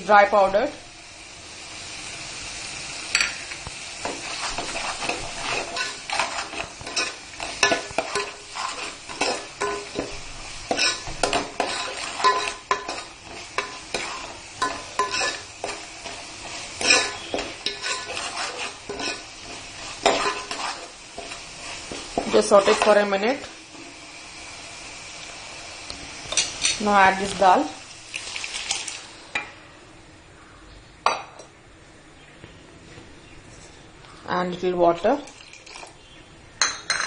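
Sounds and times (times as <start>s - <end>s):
food sizzling in oil: 0.0s - 29.4s, 34.8s - 36.0s
metal spoon scraping a pot: 4.0s - 10.1s, 10.7s - 23.0s.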